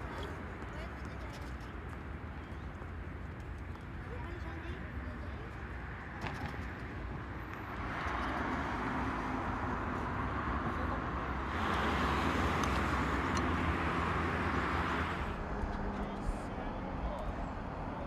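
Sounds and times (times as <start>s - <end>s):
road traffic passing: 0.0s - 18.0s.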